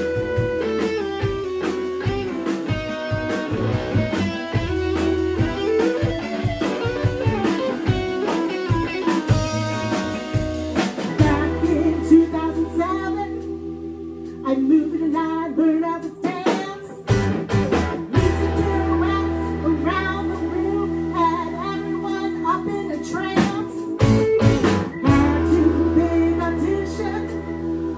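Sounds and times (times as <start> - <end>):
drum kit: 0.0 - 15.3, 16.0 - 27.9
bass: 0.0 - 27.9
electric guitars: 0.0 - 27.9
woman singing: 11.2 - 13.6, 14.4 - 17.1, 18.2 - 24.0, 25.0 - 27.9.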